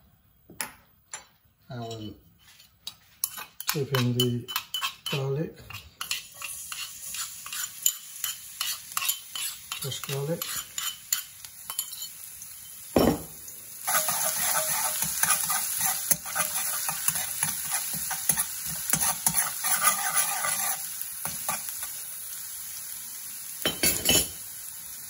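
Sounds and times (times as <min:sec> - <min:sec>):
metal spoon scraping a wok: 0:01.9 - 0:12.8, 0:13.8 - 0:22.1
garlic sizzling in oil: 0:05.7 - 0:25.0.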